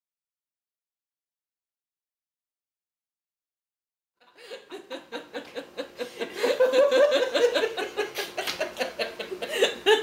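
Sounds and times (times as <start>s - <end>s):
two people laughing: 4.2s - 10.0s.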